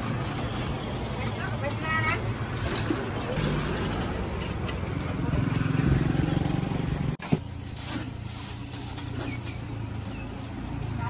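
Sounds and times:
motor scooter engines: 0.0s - 11.0s
passing road traffic: 0.0s - 11.0s.

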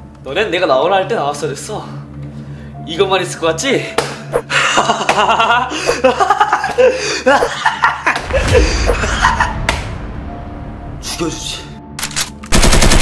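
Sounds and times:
woman laughing: 4.5s - 9.6s
low rumble: 8.2s - 11.9s.

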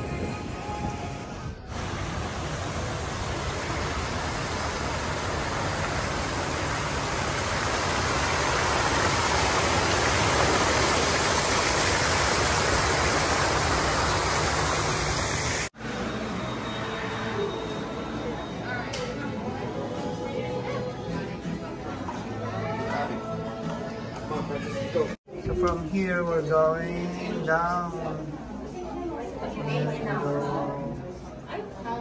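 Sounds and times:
water cascading into pool: 1.7s - 15.7s.

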